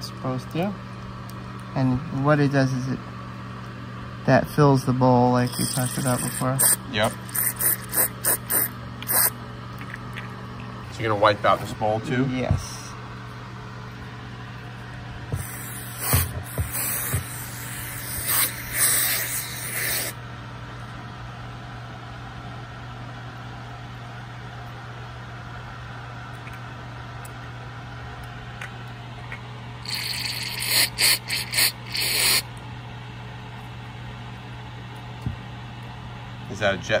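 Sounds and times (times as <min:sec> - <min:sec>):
aerosol spray hissing: 0:05.6 - 0:09.3, 0:15.4 - 0:20.2, 0:29.9 - 0:32.4
short spray bursts: 0:05.6 - 0:09.4, 0:15.4 - 0:20.2, 0:29.9 - 0:32.4.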